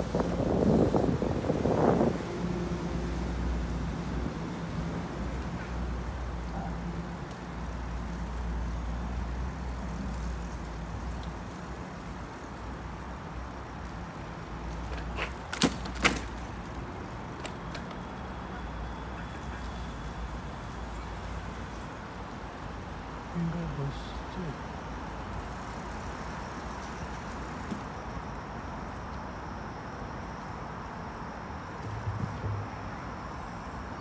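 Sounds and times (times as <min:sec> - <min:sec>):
wind on microphone: 0:00.0 - 0:02.9
bicycle rolling over wet paving: 0:00.0 - 0:18.7, 0:24.7 - 0:29.2.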